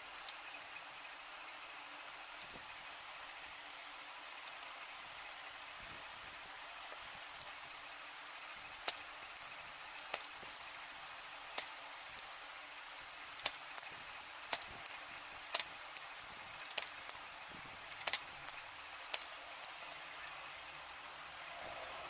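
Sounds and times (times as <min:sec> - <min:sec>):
steady hiss: 0:00.0 - 0:22.0
sharp clicks and ticks: 0:07.4 - 0:07.6, 0:08.8 - 0:10.8, 0:11.5 - 0:12.4, 0:13.3 - 0:17.3, 0:17.9 - 0:20.0.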